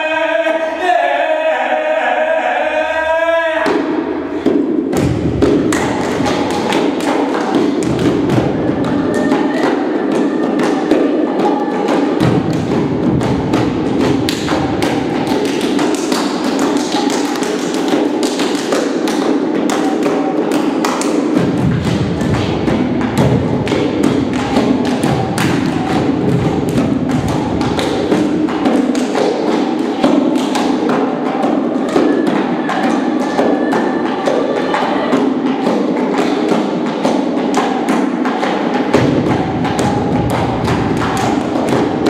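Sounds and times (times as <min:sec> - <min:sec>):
feet beating on wooden stage: 0:20.8 - 0:33.9.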